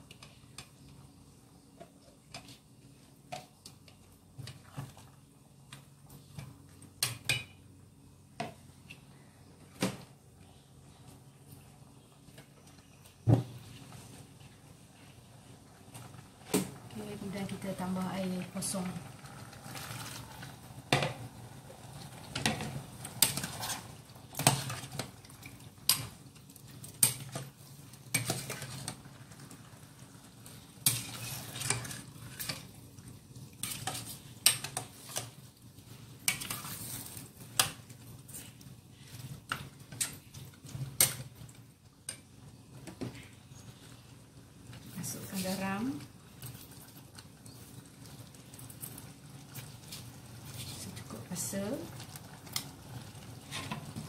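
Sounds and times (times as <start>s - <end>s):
ladle scraping a metal pot: 30.8s - 32.7s.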